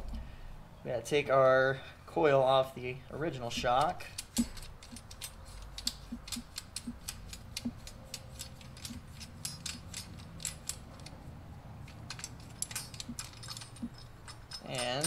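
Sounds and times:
light metal clicks: 3.6 - 15.0.

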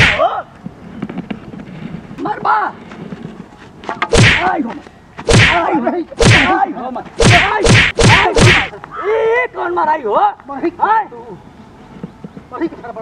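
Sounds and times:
slaps and whacks in a scuffle: 0.0 - 0.3, 3.9 - 8.7.

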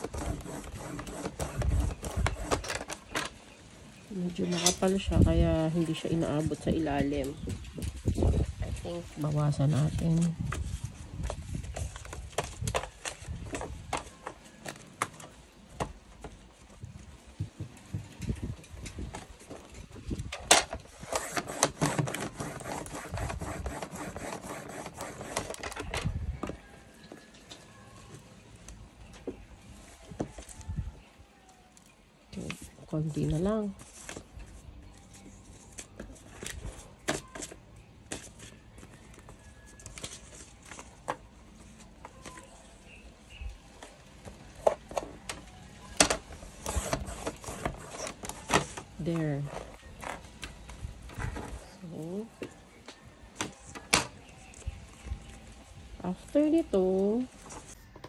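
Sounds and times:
blade scraping along paper: 0.0 - 3.1, 20.9 - 25.8, 46.5 - 49.7.

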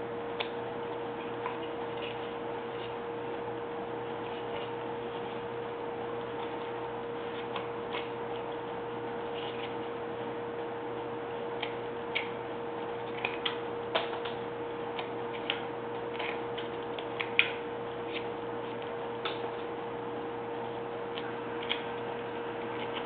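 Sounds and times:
steady low hum: 0.0 - 23.0
knife carving wood chips: 14.9 - 19.7, 21.6 - 23.0.

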